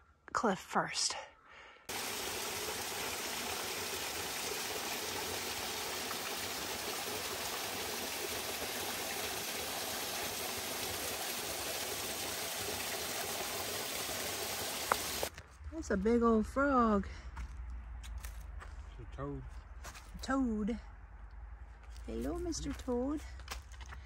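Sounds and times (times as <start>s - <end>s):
small waterfall splashing: 1.9s - 15.3s.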